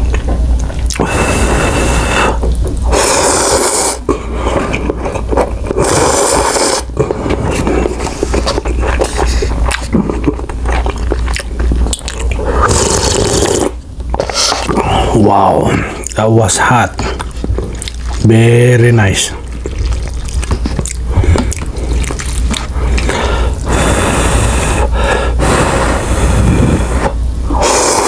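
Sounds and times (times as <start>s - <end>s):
wet chewing: 0.0s - 1.1s, 2.4s - 15.1s, 16.9s - 24.0s
slurping noodles: 0.8s - 16.0s, 19.4s - 28.0s
slurping hot broth: 0.9s - 10.9s, 12.4s - 15.1s, 21.4s - 28.0s.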